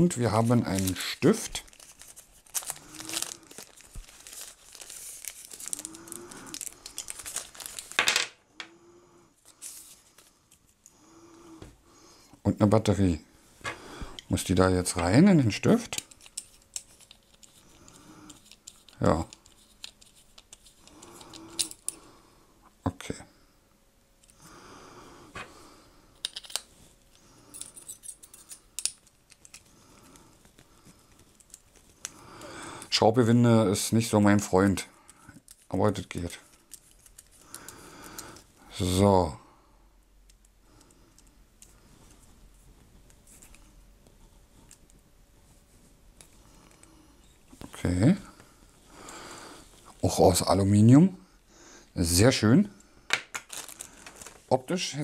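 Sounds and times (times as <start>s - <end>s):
plastic packaging crinkling: 0.2s - 8.1s, 53.2s - 54.6s.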